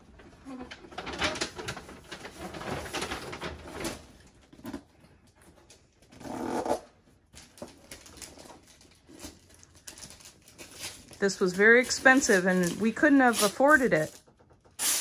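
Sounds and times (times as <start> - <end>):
gift-wrapped box rustling: 7.4 - 15.0.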